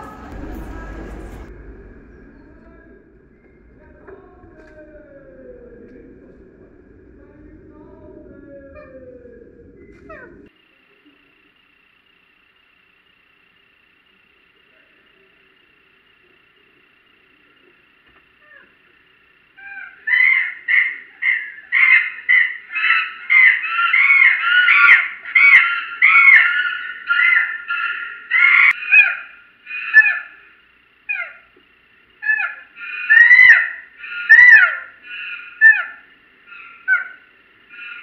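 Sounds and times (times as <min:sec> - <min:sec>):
chimpanzee calling: 0:04.0 - 0:10.5, 0:18.4 - 0:18.8, 0:19.5 - 0:30.5, 0:31.1 - 0:31.5, 0:32.2 - 0:38.0.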